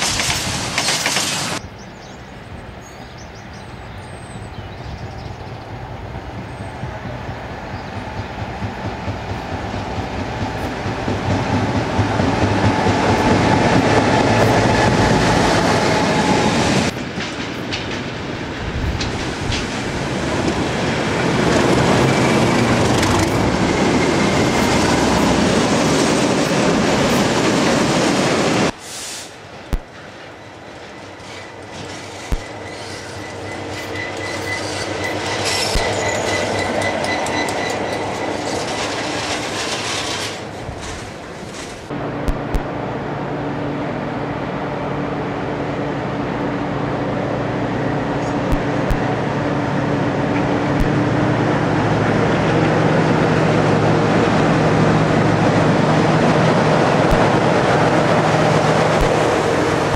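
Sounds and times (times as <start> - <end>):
diesel locomotive engines: 0.0 - 59.9
wagons clattering over rail joints: 16.2 - 27.8, 30.1 - 41.9
thin high squeal: 31.2 - 40.4.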